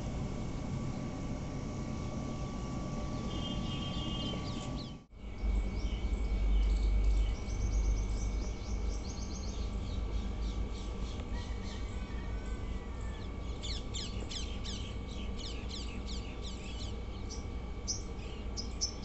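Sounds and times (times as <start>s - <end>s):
steady background hum: 0.0s - 19.0s
small birds chirping: 3.1s - 11.9s, 13.2s - 19.0s.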